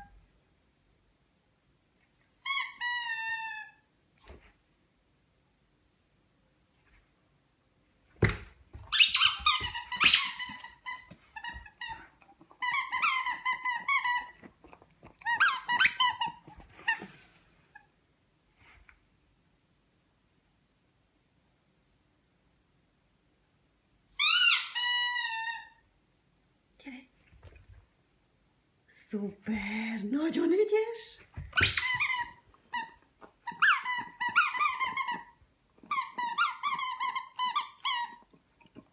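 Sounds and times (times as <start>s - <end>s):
squeaky ball squeaking: 2.4s - 3.7s, 8.2s - 14.5s, 15.2s - 17.0s, 31.4s - 38.2s.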